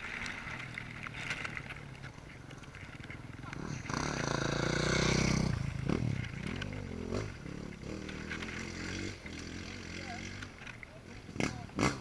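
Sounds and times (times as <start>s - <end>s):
motocross engines revving: 3.4s - 12.0s.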